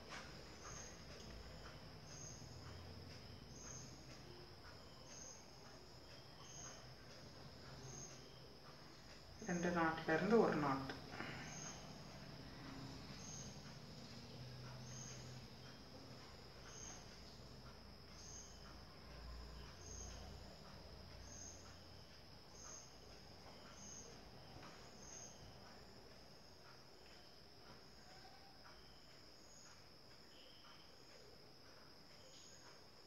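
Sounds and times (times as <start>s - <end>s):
insect chirping: 0.0s - 33.0s.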